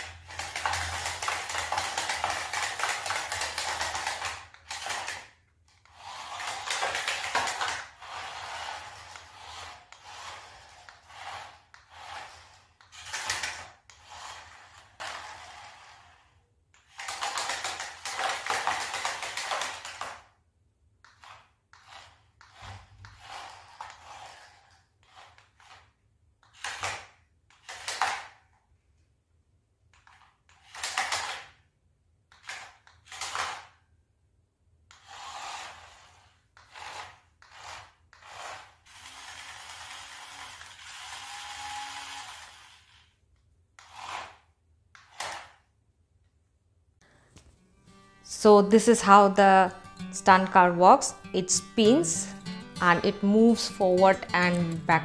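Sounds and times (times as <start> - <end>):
toy car electric motors whirring: 0.0 - 20.4, 21.0 - 28.5, 30.0 - 31.6, 32.3 - 33.8, 34.9 - 45.7.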